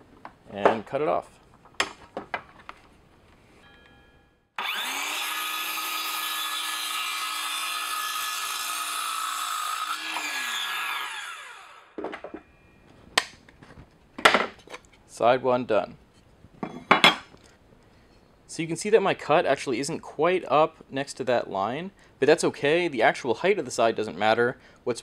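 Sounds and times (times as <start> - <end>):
circular saw cutting wood: 4.6 - 12.0.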